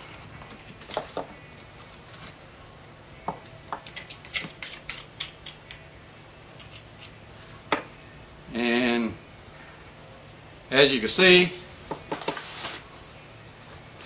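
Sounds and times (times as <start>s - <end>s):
oyster shell clicking and scraping: 3.8s - 5.8s.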